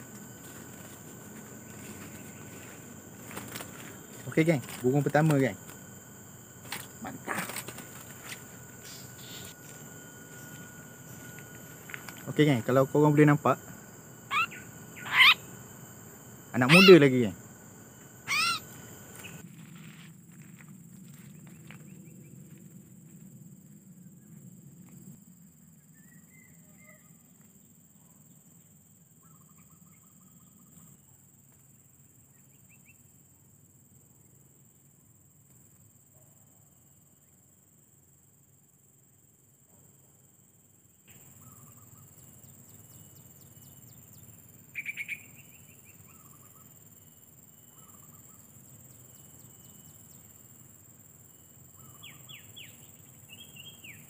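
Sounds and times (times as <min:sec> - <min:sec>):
insects buzzing: 0:00.0 - 0:54.0
bird chirps: 0:14.2 - 0:15.7, 0:18.2 - 0:19.4, 0:41.4 - 0:46.7, 0:47.7 - 0:48.6, 0:51.8 - 0:54.0.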